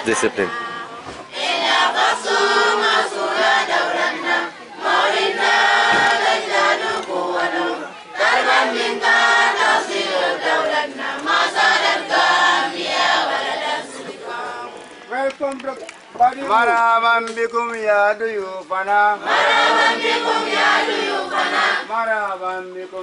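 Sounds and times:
choir singing: 0.5s - 14.9s, 19.2s - 21.9s.

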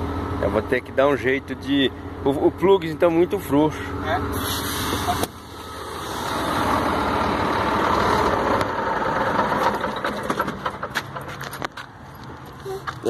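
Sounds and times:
diesel truck engine idling: 0.0s - 13.0s
sharp clicks and knocks: 9.4s - 13.0s.

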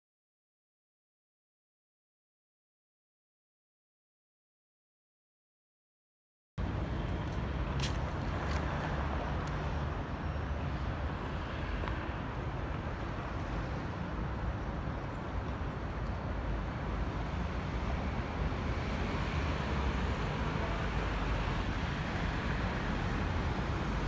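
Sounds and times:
city traffic rumble: 6.6s - 24.0s.

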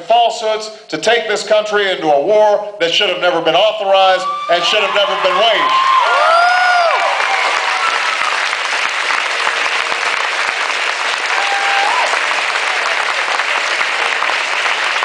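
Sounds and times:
crowd applauding and cheering: 4.2s - 15.0s.

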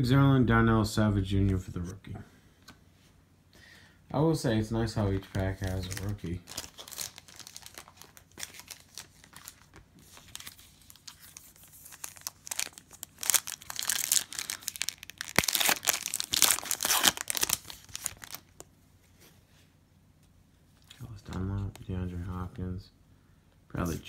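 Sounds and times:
plastic wrapper crinkling and tearing: 5.2s - 18.7s.

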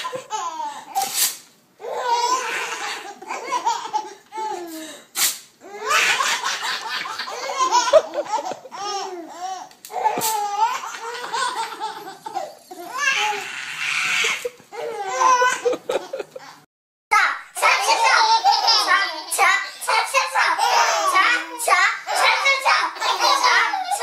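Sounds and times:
babies laughing: 0.0s - 1.1s, 1.8s - 4.8s, 5.6s - 16.7s, 17.6s - 24.0s.

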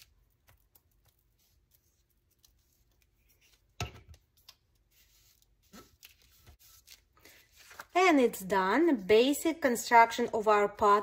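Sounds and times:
paper handling: 0.0s - 8.3s.

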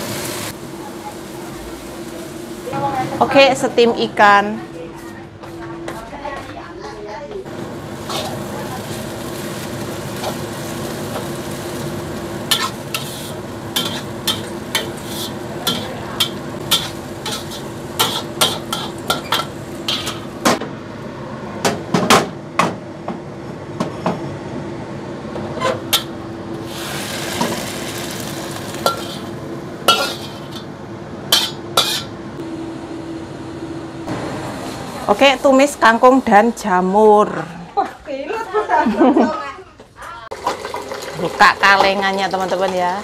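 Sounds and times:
food sizzling: 0.0s - 4.1s, 7.5s - 20.6s, 26.6s - 30.7s, 40.1s - 43.0s
spatula scraping a wok: 8.0s - 9.2s, 12.4s - 20.4s, 28.6s - 30.7s, 31.3s - 32.2s.

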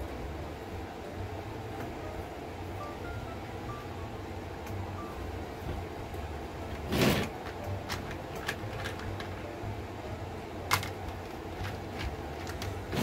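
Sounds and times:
steady low hum: 0.0s - 13.0s
wooden beads rattling in plastic box: 6.9s - 9.4s.

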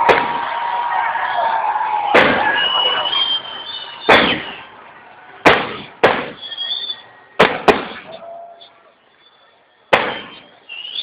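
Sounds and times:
firework shells bursting: 5.4s - 8.1s.

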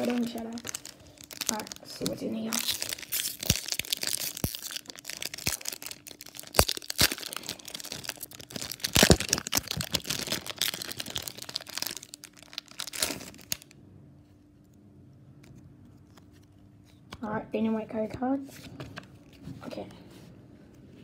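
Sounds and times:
foil wrapper crinkling and tearing: 0.0s - 13.7s.

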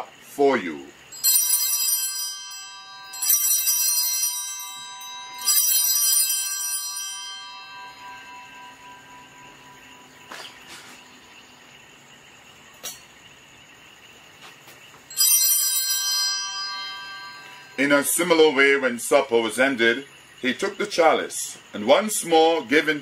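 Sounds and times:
altar bells ringing: 1.0s - 11.8s, 15.0s - 20.9s.

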